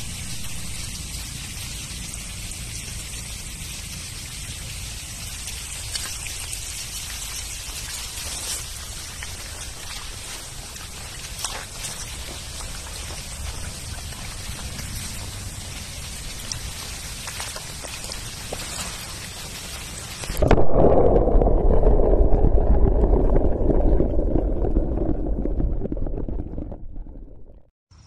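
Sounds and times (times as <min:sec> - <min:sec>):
rain falling on stream: 0:00.0 - 0:20.5
faint drip ticks: 0:04.3 - 0:19.1.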